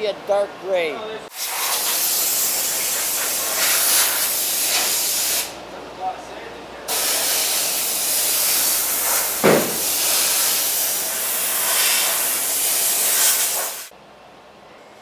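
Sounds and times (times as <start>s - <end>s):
compressed air hissing from blow gun: 1.3s - 5.6s, 6.9s - 13.9s.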